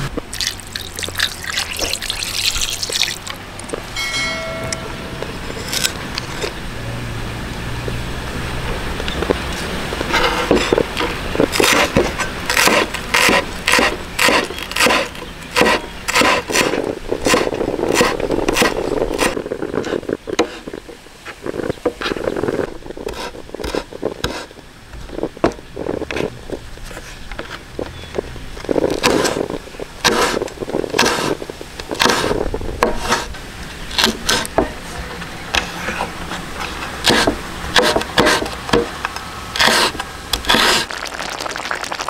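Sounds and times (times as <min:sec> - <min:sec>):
cleaver chopping on wooden board: 0:11.5 - 0:19.4, 0:29.0 - 0:29.4, 0:30.0 - 0:30.4, 0:31.0 - 0:31.4, 0:32.0 - 0:33.3, 0:37.0 - 0:38.9.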